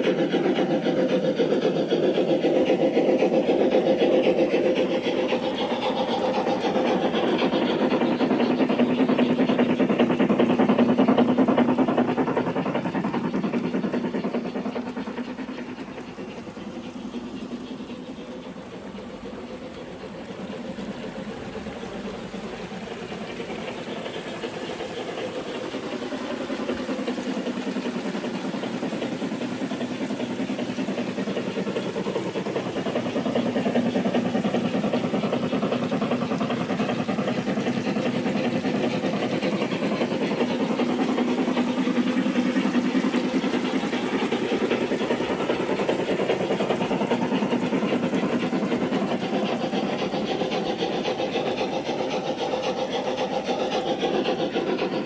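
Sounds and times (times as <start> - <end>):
model train wheels rumbling on rails: 0.0 - 55.0
steam hiss: 0.0 - 55.0.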